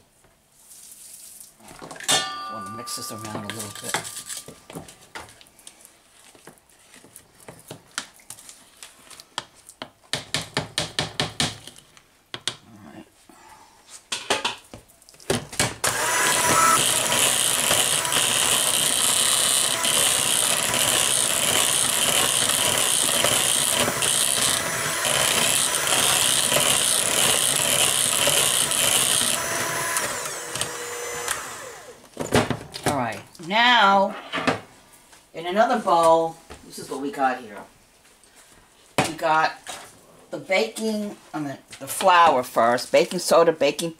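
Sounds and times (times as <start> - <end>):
electric hand mixer running: 15.8 - 32.1
spatula scraping mixing bowl: 16.3 - 30.7.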